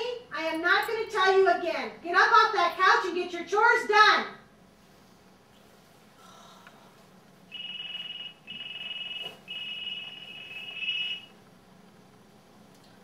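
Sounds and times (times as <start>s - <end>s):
mobile phone ringing: 7.5s - 11.3s.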